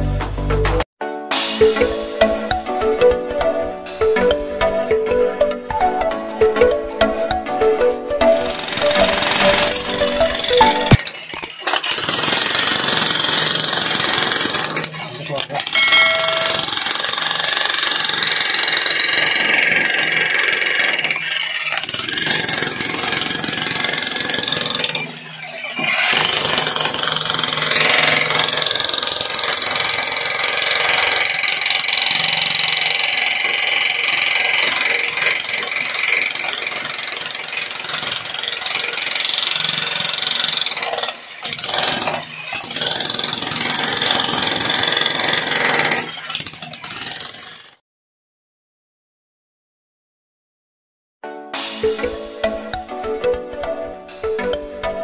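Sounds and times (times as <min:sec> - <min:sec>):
demolition breaker hammering concrete: 0:08.4 - 0:47.7.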